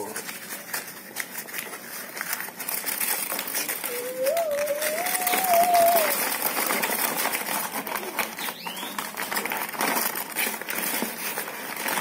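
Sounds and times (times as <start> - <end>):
paper crinkling and rustling: 0.0 - 12.0.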